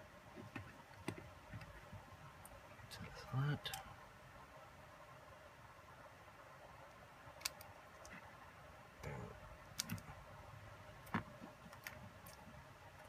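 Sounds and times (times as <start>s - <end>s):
sharp plastic clicks: 7.4s - 8.2s, 9.7s - 10.1s.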